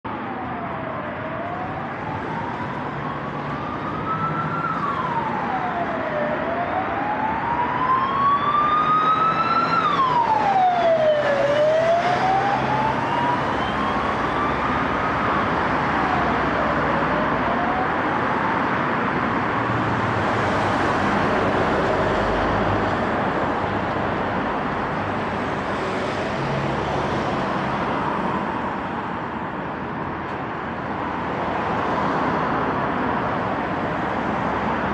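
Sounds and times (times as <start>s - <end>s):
road traffic noise: 0.0s - 34.9s
emergency siren wailing: 0.1s - 34.9s.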